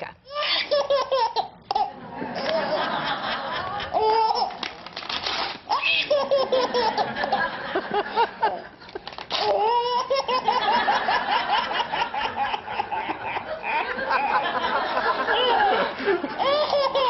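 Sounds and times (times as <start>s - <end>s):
baby laughing: 0.3s - 2.9s, 3.6s - 4.6s, 5.7s - 7.5s, 8.4s - 14.6s, 15.3s - 17.0s
paper tearing: 4.4s - 5.7s, 9.1s - 9.6s.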